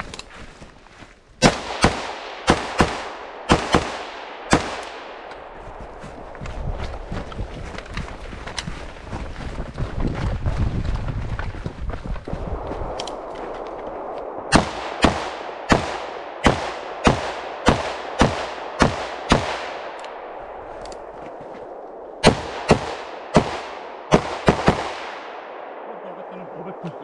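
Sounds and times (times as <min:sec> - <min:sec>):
rifle shots: 0:01.4 - 0:05.3, 0:14.0 - 0:20.2, 0:22.2 - 0:25.9
wind on microphone: 0:05.5 - 0:14.6.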